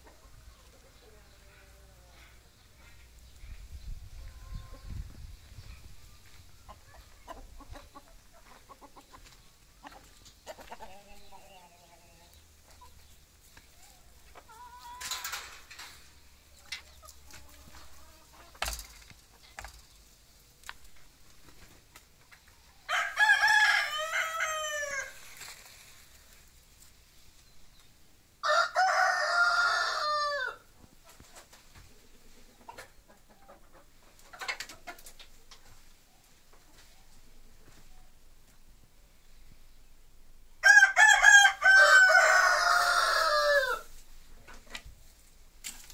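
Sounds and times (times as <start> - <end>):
hens clucking softly: 0.0 - 18.6, 30.4 - 38.6
rooster crowing: 22.9 - 25.2, 28.4 - 30.6, 40.6 - 43.9.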